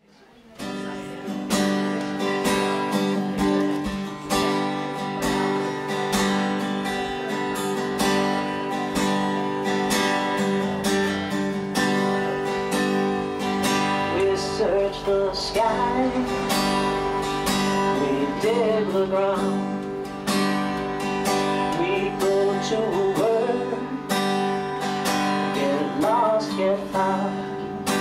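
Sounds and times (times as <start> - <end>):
acoustic guitars strumming: 0.5 - 28.0
sustained held notes: 10.5 - 23.9.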